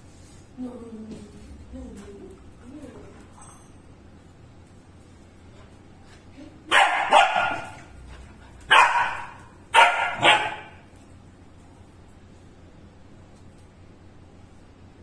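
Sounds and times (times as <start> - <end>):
puppy barking: 6.7 - 8.0, 8.7 - 10.8.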